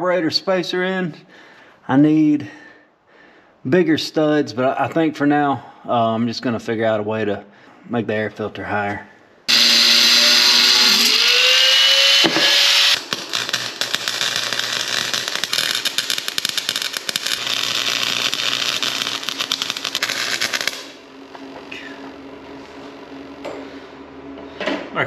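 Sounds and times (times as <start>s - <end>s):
power tool whining: 9.5s - 22.2s
welding arc crackling: 9.5s - 23.5s.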